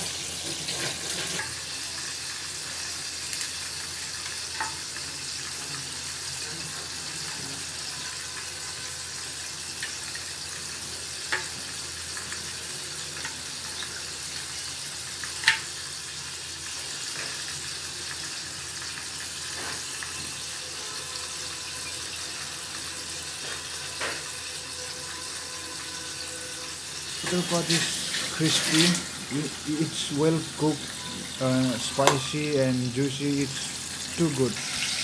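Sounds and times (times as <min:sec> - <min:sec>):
fried chicken crackling: 0:26.4 - 0:35.0
steady hiss: 0:26.8 - 0:35.0.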